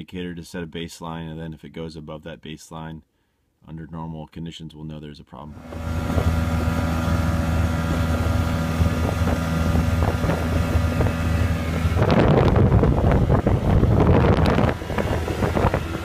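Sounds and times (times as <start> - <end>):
outboard motor droning: 5.5 - 16.0
water rushing past hull: 5.6 - 16.0
wind buffeting microphone: 5.6 - 16.0.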